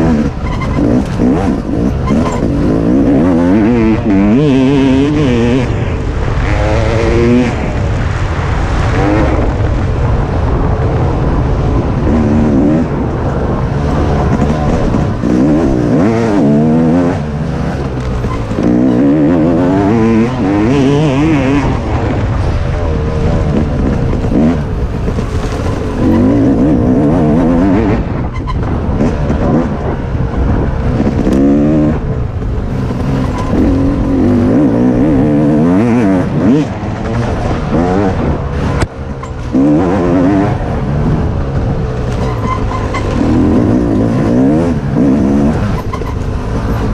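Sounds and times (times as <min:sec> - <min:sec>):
dirt bike engine revving: 0:00.0 - 0:46.9
wind rumble on microphone: 0:00.0 - 0:46.9.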